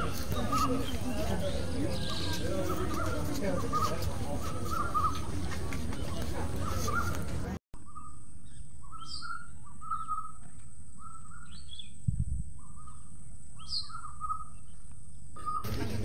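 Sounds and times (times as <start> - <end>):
bird whistling and chirping: 7.8 - 10.4.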